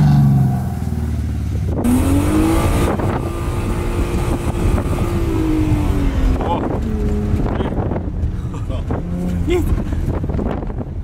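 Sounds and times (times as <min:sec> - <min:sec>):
car engine revving hard: 0:01.7 - 0:08.0.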